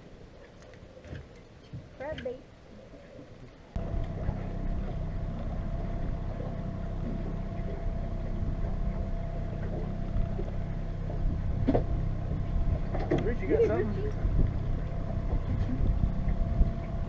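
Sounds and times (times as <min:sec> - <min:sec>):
faint motor whine: 0:03.8 - 0:17.0
outboard motor humming: 0:03.8 - 0:17.0.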